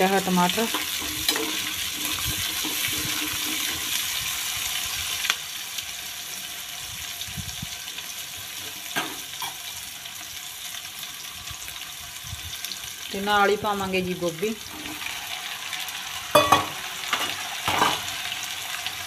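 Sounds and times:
onions sizzling in oil: 0.0s - 19.0s
spatula stirring: 0.6s - 4.1s.

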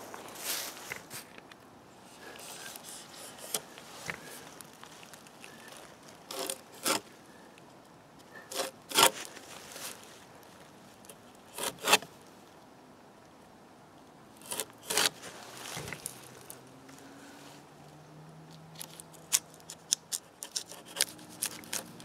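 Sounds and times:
knife scraping bark: 2.2s - 4.6s, 6.3s - 7.1s, 8.4s - 9.3s, 11.5s - 12.1s, 14.4s - 16.1s, 18.9s - 22.0s.

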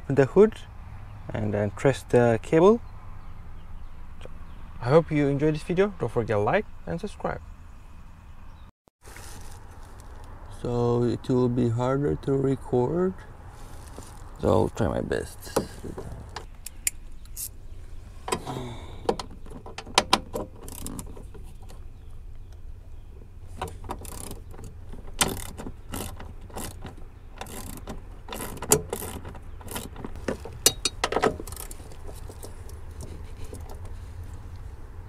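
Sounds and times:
hand ratchet clicking: 23.9s - 30.0s.

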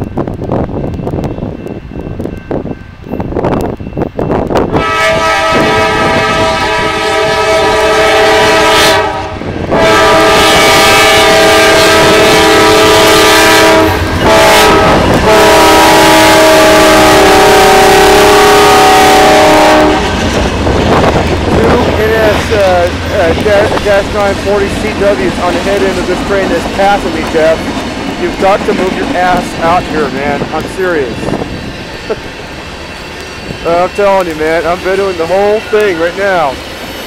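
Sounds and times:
locomotive air horn blasts: 4.7s - 20.3s
engines and wheels rumbling: 19.0s - 37.0s.

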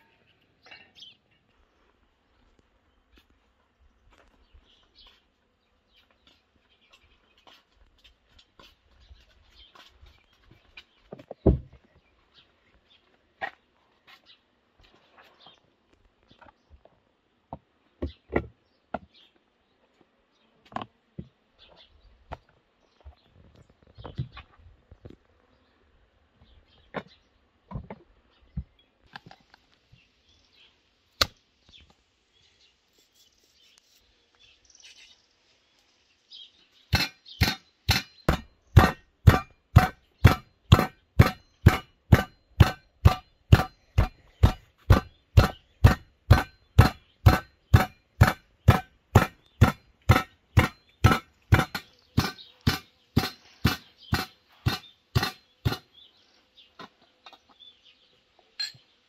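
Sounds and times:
knife chopping meat on board: 37.0s - 55.8s.

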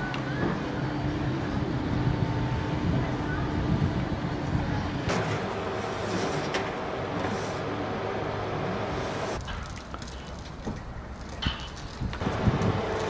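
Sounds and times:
machinery humming: 0.0s - 9.5s, 12.0s - 13.0s
metal chain clinks: 9.4s - 13.0s.

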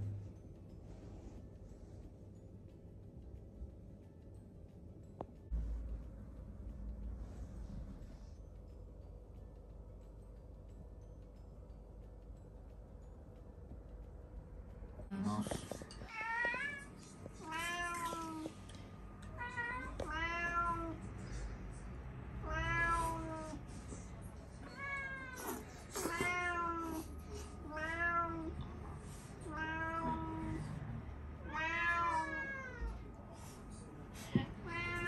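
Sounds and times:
cat meowing: 19.4s - 21.0s, 22.4s - 23.5s, 27.7s - 28.5s, 29.5s - 30.6s, 31.4s - 33.0s, 34.6s - 35.0s.

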